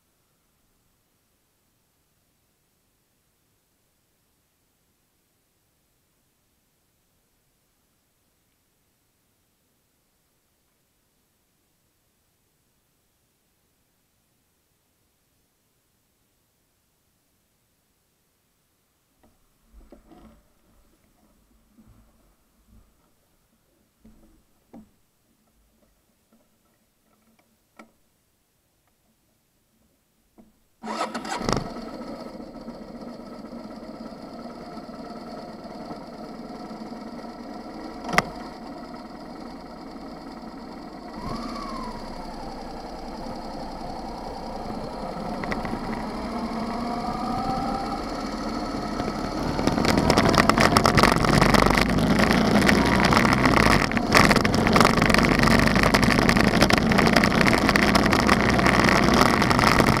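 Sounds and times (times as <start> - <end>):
motorcycle engine: 30.8 - 60.0.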